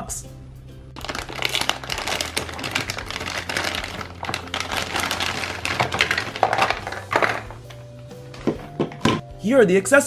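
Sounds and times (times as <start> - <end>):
plastic bag crinkling: 1.0 - 7.7.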